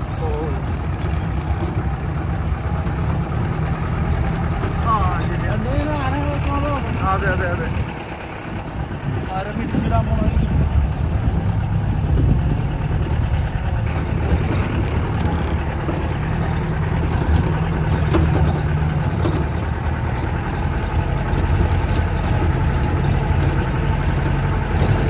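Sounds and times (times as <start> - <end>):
engine droning: 0.0 - 25.0.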